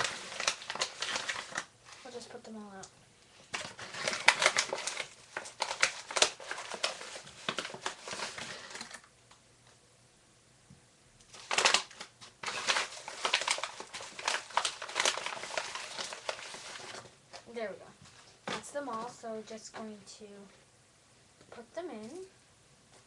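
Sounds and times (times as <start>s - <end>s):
paper bag rustling: 0.0s - 2.5s, 3.5s - 9.1s, 11.3s - 19.2s.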